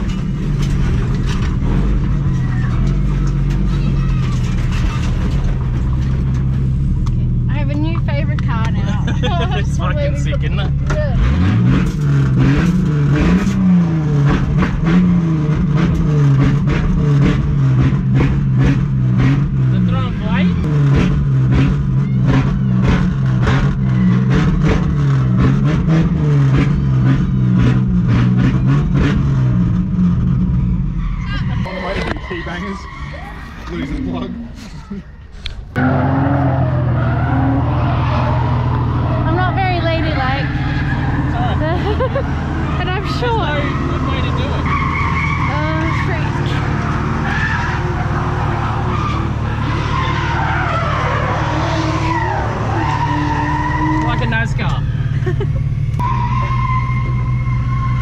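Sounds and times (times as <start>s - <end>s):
car engine revving hard: 9.1s - 30.6s
tyres squealing: 30.9s - 58.0s.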